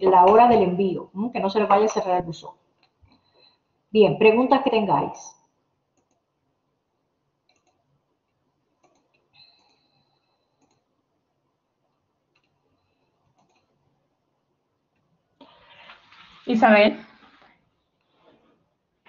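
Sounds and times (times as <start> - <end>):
faint clicks: 6.0 - 6.2, 7.4 - 7.8, 8.8 - 10.9, 11.8 - 13.8.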